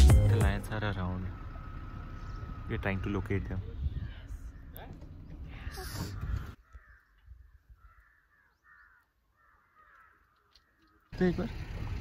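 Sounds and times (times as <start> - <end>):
crows cawing: 5.5 - 11.1.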